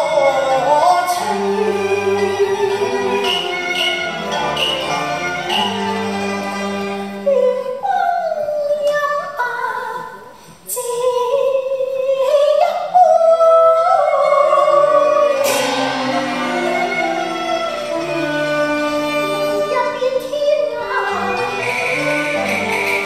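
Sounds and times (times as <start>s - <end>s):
woman singing opera: 0.0s - 4.4s, 7.1s - 22.7s
instrumental accompaniment: 0.0s - 7.8s, 14.2s - 23.0s.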